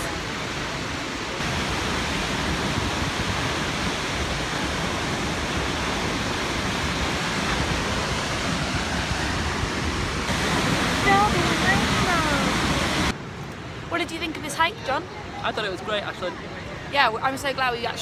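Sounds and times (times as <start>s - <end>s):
waterfall rushing: 0.0s - 13.2s.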